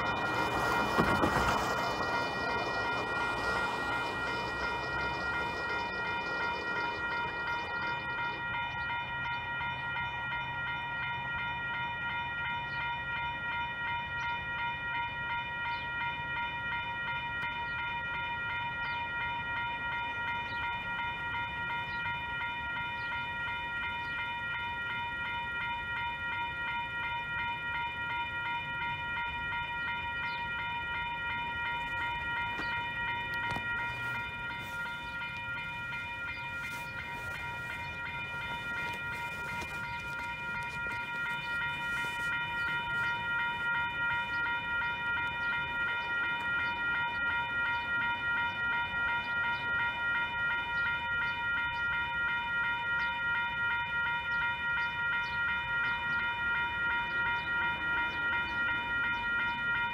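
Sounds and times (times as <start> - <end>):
crossing warning bell ringing: 0.0 - 59.9.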